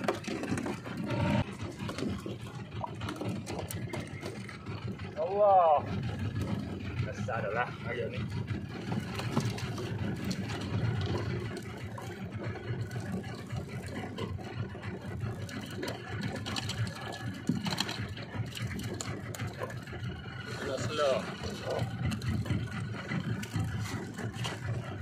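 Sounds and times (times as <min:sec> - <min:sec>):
boat engine running: 0:00.0 - 0:25.0.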